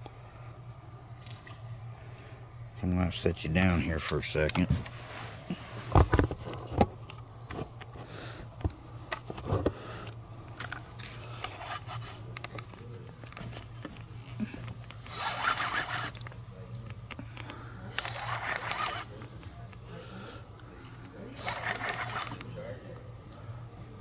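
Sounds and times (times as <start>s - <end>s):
night insects trilling: 0.0s - 24.0s
camera knocks and scrapes: 5.9s - 6.9s
rustling scrape: 11.0s - 12.2s, 18.0s - 19.1s, 21.4s - 22.4s.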